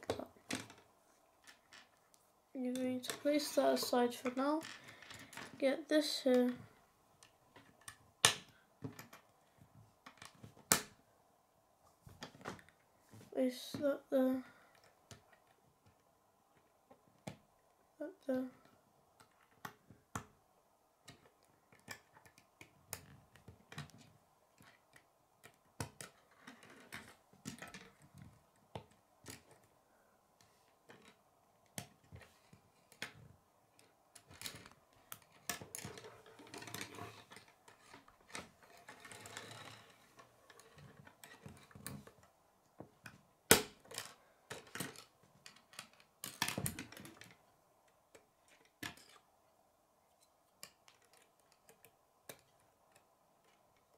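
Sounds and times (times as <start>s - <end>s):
plastic pieces clicking together: 43.0s - 47.4s, 50.6s - 53.9s.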